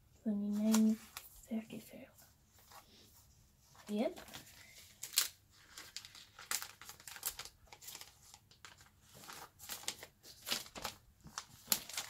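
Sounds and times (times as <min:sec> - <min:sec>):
plastic sleeves crinkling: 0:00.2 - 0:01.8, 0:03.6 - 0:12.0.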